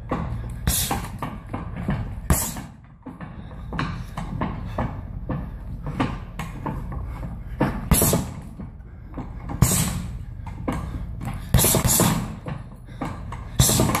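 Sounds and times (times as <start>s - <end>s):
gloved punches on heavy bag: 0.6s - 2.9s, 7.7s - 8.5s, 9.6s - 10.2s, 11.5s - 12.5s, 13.4s - 14.0s.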